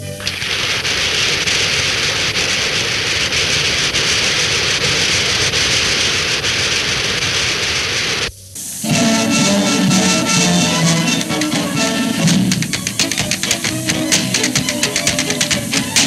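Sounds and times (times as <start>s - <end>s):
audience applauding: 0.2s - 5.1s, 8.9s - 16.0s
orchestra playing: 8.8s - 16.0s.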